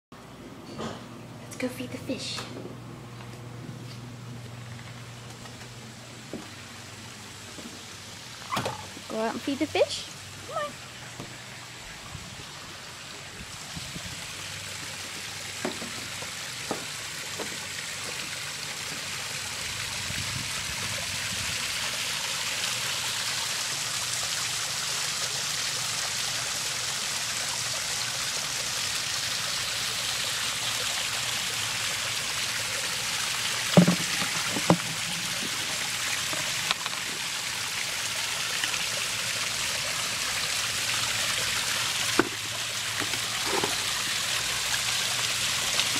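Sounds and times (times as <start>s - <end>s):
waterfall splashing into pond: 6.4s - 45.9s
short knocks: 33.8s - 35.1s.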